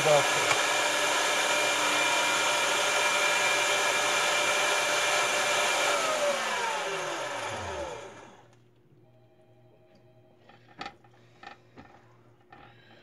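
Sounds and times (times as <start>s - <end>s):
electric meat grinder motor: 0.0s - 8.6s
motor winding down whine: 0.0s - 8.6s.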